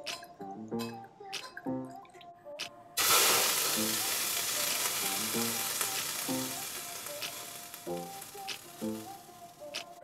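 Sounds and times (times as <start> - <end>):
water sizzling on hot wok: 3.0 - 10.0.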